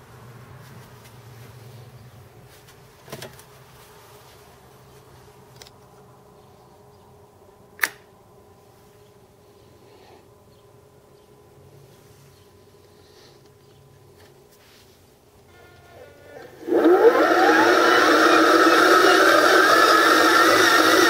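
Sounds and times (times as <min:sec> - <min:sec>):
faint electric hum and whine: 0:00.0 - 0:21.0
sharp switch click: 0:07.8 - 0:08.0
small click: 0:07.8 - 0:08.1.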